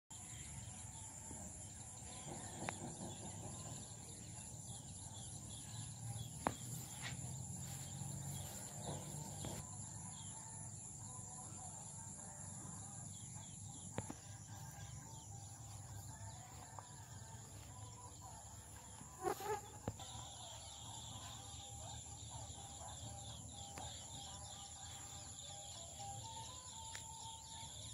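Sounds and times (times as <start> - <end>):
high insect buzz: 13.9 - 25.9.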